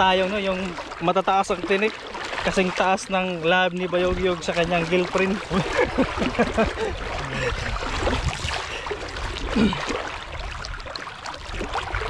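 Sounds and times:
water sloshing around wading legs: 0.0s - 12.0s.

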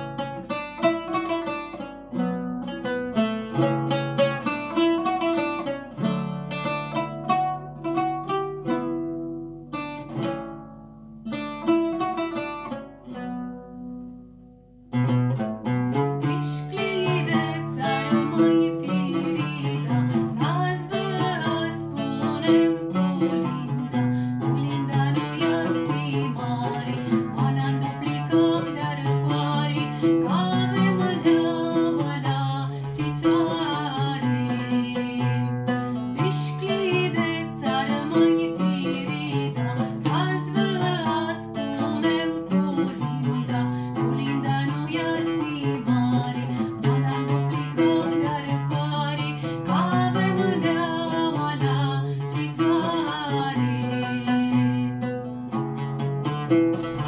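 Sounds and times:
oud plucked: 0.0s - 57.0s
woman singing: 16.2s - 55.3s.

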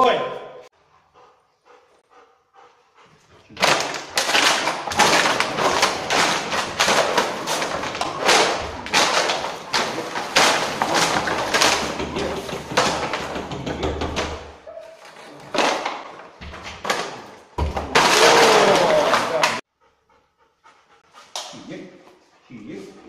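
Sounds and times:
loud dense rustling: 3.6s - 13.6s.

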